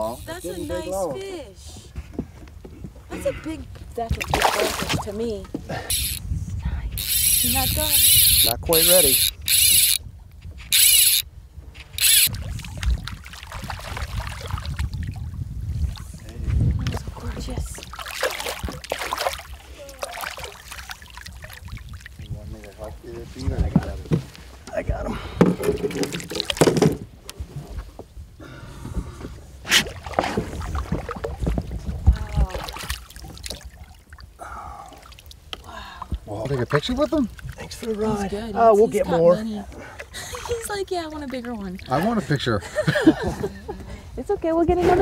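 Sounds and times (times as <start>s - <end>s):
water splashing against boat: 2.6s - 6.2s, 11.7s - 45.0s
fly reel ratcheting: 5.9s - 6.2s, 7.0s - 10.0s, 10.7s - 11.3s, 11.9s - 12.3s.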